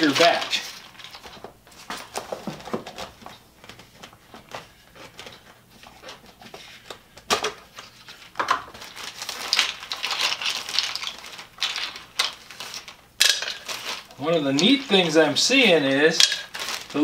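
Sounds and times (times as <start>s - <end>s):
caps clattering: 0.0s - 3.2s, 8.3s - 17.0s
plastic bag crinkling: 0.0s - 3.4s, 7.7s - 17.0s.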